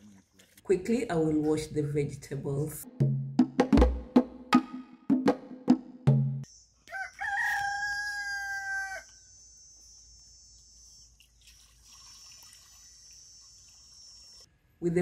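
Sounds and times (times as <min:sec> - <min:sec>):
wood-block music beat: 0:02.9 - 0:06.5
rooster crowing: 0:06.8 - 0:09.3
water pouring into a pot: 0:11.2 - 0:14.2.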